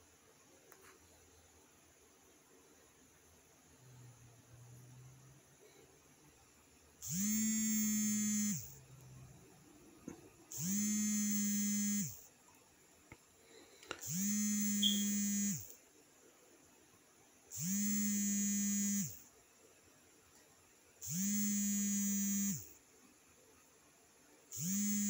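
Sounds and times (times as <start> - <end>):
small electric motor buzzing: 7.0 - 8.8, 10.5 - 12.3, 14.0 - 15.8, 17.5 - 19.3, 21.0 - 22.8, 24.5 - 25.0.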